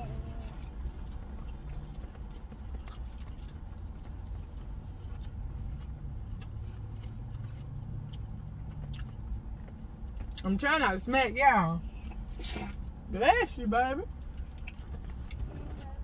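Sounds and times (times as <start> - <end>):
chewing: 0.0 - 10.4, 14.2 - 16.0
car idling rumble: 0.0 - 16.0.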